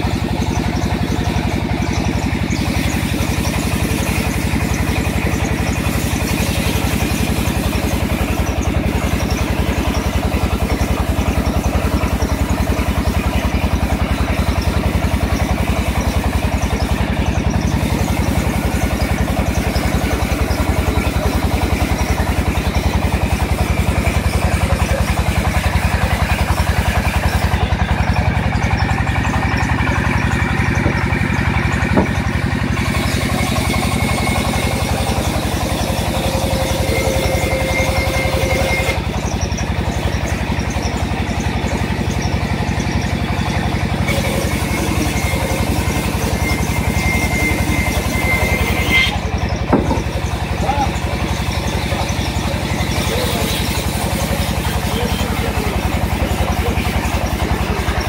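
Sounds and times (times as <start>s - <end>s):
diesel engine running: 0.0s - 58.0s
short knock: 49.7s - 50.0s.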